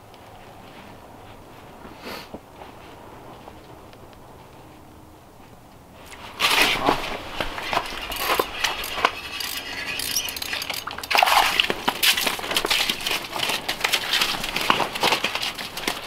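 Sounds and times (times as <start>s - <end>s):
fish flopping on ice: 6.3s - 16.0s
clicks and scrapes on ice: 6.4s - 16.0s.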